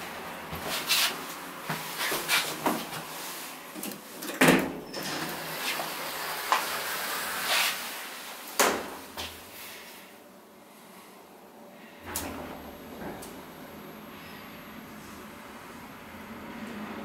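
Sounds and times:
elevator doors sliding: 0:00.0 - 0:08.2, 0:12.0 - 0:17.0
elevator doors clunking: 0:04.2 - 0:06.8, 0:12.0 - 0:17.0.

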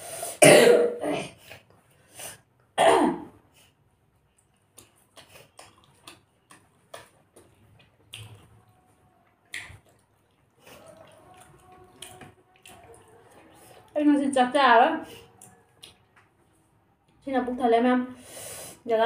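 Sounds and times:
woman coughing: 0:00.4 - 0:01.4, 0:02.8 - 0:03.3
chewing mouth clicks and smacks: 0:04.2 - 0:14.0, 0:15.1 - 0:17.2.

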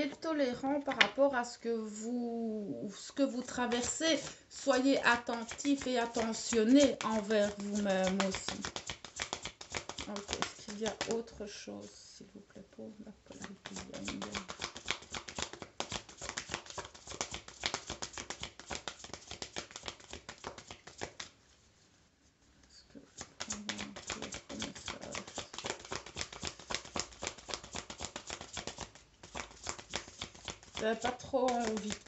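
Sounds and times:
cards being shuffled by hand: 0:03.2 - 0:11.3, 0:13.3 - 0:21.5, 0:23.1 - 0:32.0.

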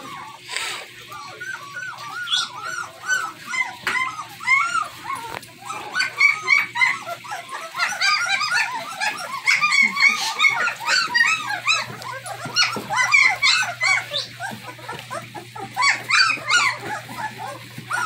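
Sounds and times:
puppies squealing and whimpering: 0:00.0 - 0:18.0.

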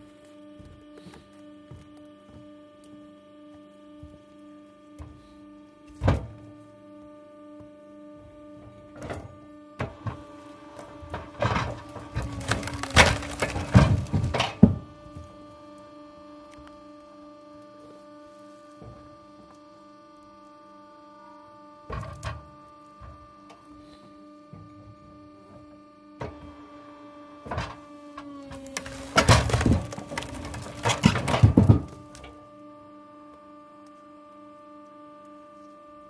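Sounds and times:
machine hum: 0:00.0 - 0:36.0
log cracking and splitting: 0:10.0 - 0:15.8, 0:28.5 - 0:32.3.

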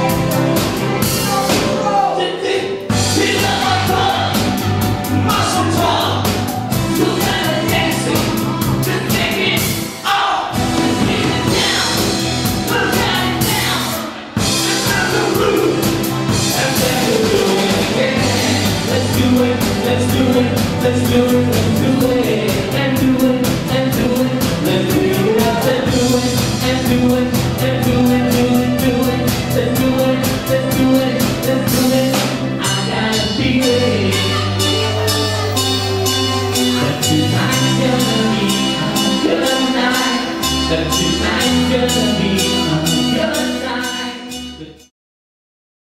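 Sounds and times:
electric guitars: 0:00.0 - 0:01.9, 0:10.6 - 0:43.7
drum kit: 0:00.0 - 0:44.4
lead vocals singing: 0:00.0 - 0:44.7.

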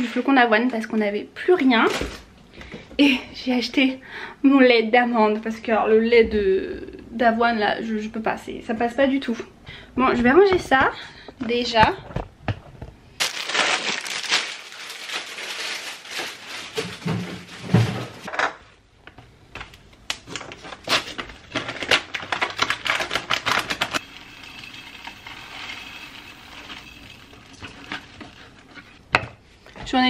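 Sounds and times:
food packaging crinkling: 0:13.2 - 0:18.3, 0:19.7 - 0:29.0
oats pouring into glass jar: 0:24.0 - 0:28.6.

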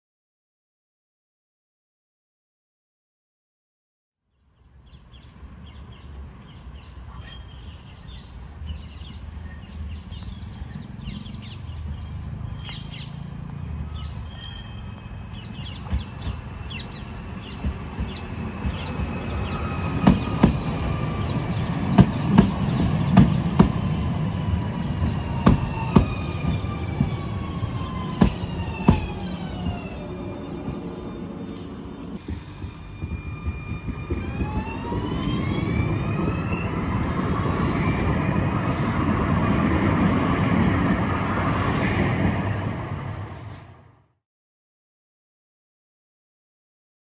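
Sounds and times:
birds chirping: 0:04.4 - 0:40.4
tram rumble: 0:04.7 - 0:44.1
sharp clicks of passing tram: 0:15.4 - 0:31.0, 0:32.0 - 0:43.8.

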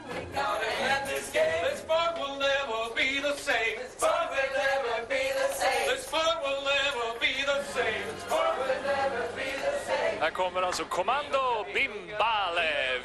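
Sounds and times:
men singing together: 0:00.0 - 0:10.2.

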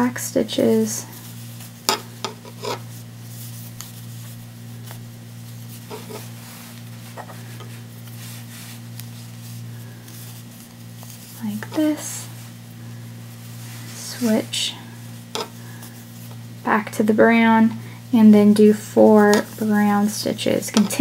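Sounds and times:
steady low hum: 0:00.0 - 0:21.0
yarn rubbing on crochet hook: 0:00.6 - 0:12.6, 0:13.3 - 0:16.5.

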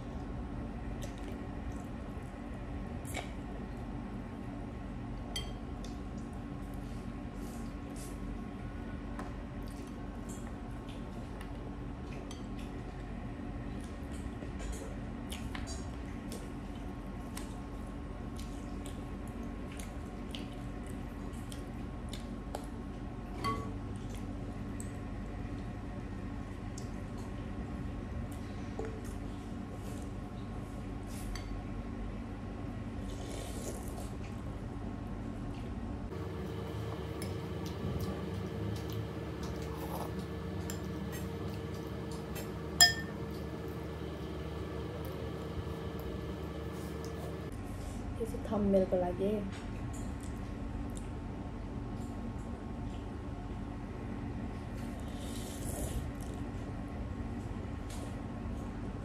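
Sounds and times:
chewing: 0:13.7 - 0:22.8, 0:37.2 - 0:43.6
steady low hum: 0:33.8 - 0:48.6
noodles being stirred squishing: 0:36.1 - 0:47.5
utensil clinking on glass: 0:42.8 - 0:43.2.

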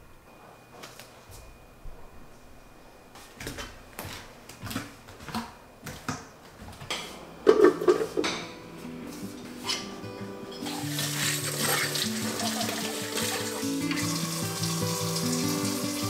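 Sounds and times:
dishes knocking and clicking: 0:06.0 - 0:08.5
soft music: 0:07.2 - 0:16.0.

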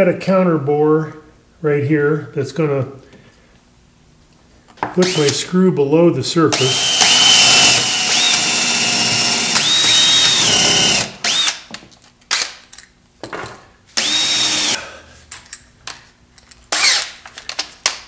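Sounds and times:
cordless drill whining: 0:06.5 - 0:11.7, 0:14.0 - 0:14.8.

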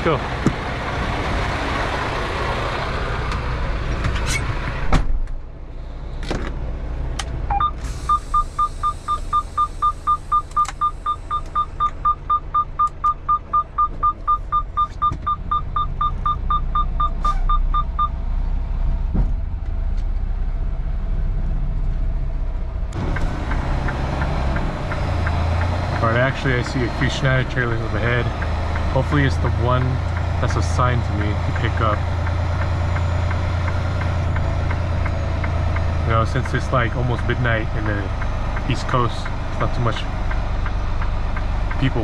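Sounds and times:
diesel engine idling: 0:00.0 - 0:04.0, 0:05.5 - 0:42.0
warning chime beeping: 0:07.5 - 0:18.1.

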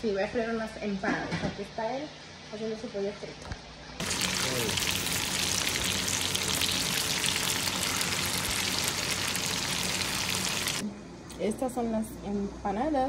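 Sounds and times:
chicken deep-frying in oil: 0:04.0 - 0:10.8.

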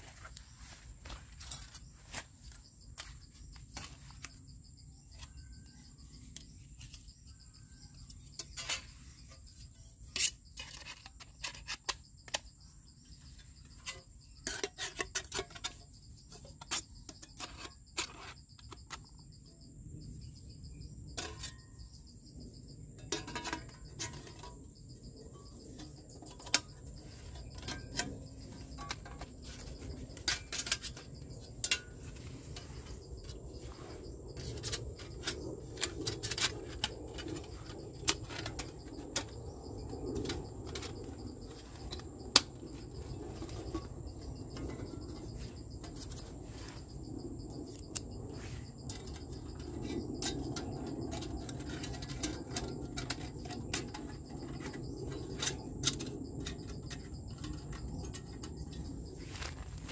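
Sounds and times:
high insect drone: 0:00.0 - 0:59.9
metal plates clinking: 0:23.0 - 0:46.9, 0:47.6 - 0:59.9.

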